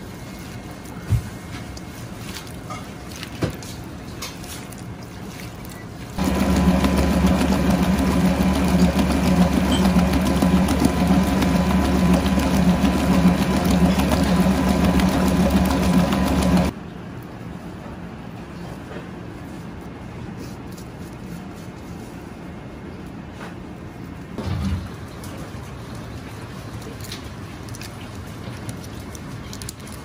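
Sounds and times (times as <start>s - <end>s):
mixer motor humming: 6.2s - 16.7s.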